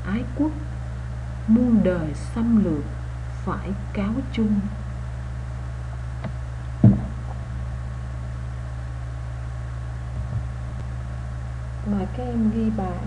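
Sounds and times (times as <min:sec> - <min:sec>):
low hum: 0:00.0 - 0:13.0
short thump: 0:06.2 - 0:07.4.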